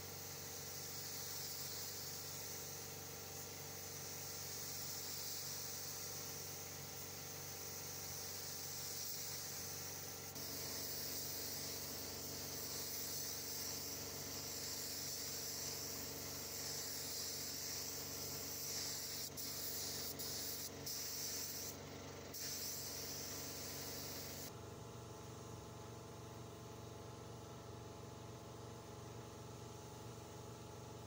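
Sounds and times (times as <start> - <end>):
air spray gun hissing: 0.0 - 24.5.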